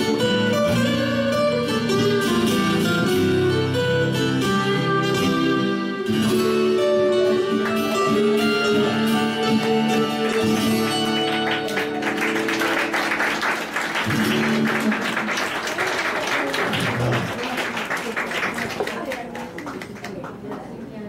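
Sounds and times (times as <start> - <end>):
acoustic guitars ringing chords: 0.0 - 15.6
audience applauding: 7.3 - 20.8.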